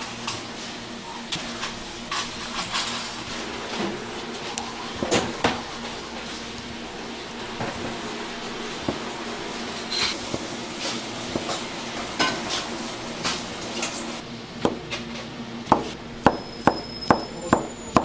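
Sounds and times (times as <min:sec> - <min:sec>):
knife chopping on cutting board: 0:15.7 - 0:18.0.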